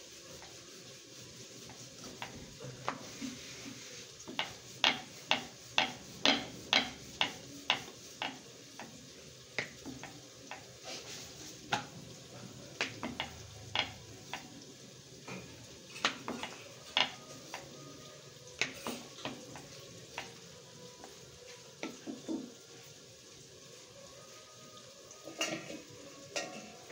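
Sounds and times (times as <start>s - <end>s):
rolling pin tapping on wooden board: 4.2s - 9.0s.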